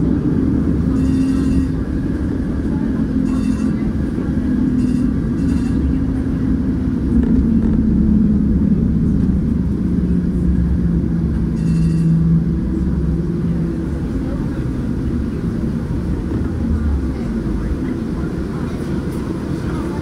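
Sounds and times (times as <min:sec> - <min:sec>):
streetcar motor hum: 0:00.0 - 0:20.0
streetcar rumbling on track: 0:00.0 - 0:20.0
short high-pitched rings: 0:00.9 - 0:01.8, 0:03.2 - 0:03.8, 0:04.7 - 0:06.0, 0:11.5 - 0:12.3.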